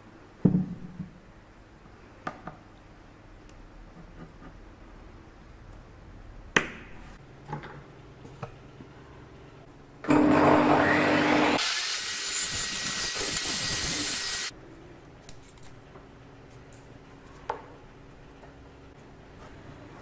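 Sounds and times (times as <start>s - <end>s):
saw cutting wood: 10.1s - 14.5s
table saw whine: 10.1s - 14.5s.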